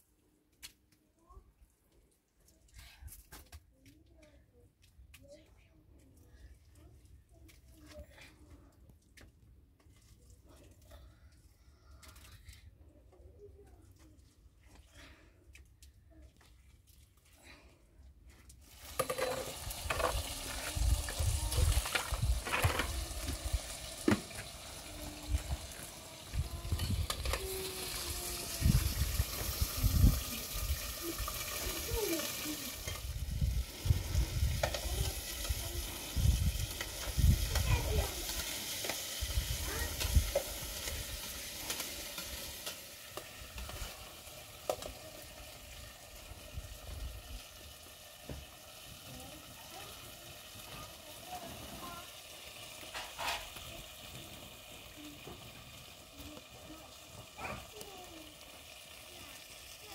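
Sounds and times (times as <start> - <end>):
wood fire: 18.3 - 59.9
food sizzling in a pan: 18.6 - 59.9
metal ladle stirring: 18.9 - 24.5.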